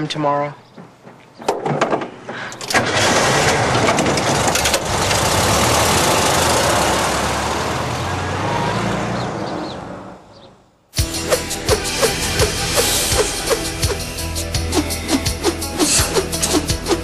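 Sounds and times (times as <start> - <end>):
car engine revving: 2.8 - 10.2.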